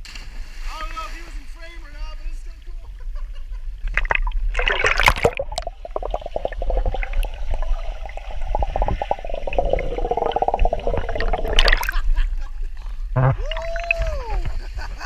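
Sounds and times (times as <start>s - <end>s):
water gurgling and bubbling: 3.9s - 12.1s, 13.1s - 14.1s
water splashing: 3.9s - 12.2s.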